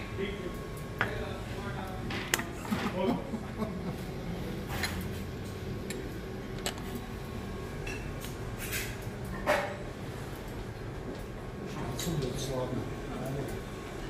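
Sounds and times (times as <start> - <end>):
steady low hum: 0.0 - 14.0
dishes and utensils clinking: 7.8 - 9.8.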